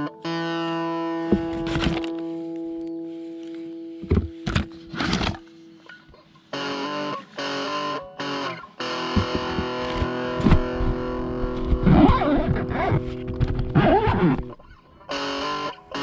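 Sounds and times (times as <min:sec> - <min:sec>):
distorted electric guitar chords: 0:00.0 - 0:16.0
steady beat: 0:08.9 - 0:11.5.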